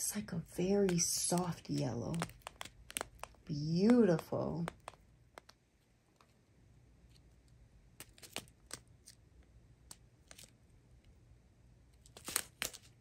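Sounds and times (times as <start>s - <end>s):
plastic bags crinkling and clicking: 0.8s - 5.5s.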